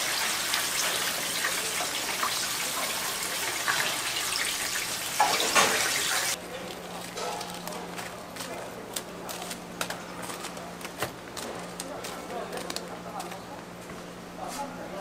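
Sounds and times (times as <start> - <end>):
oil sizzling in a deep fryer: 0.0 - 6.4.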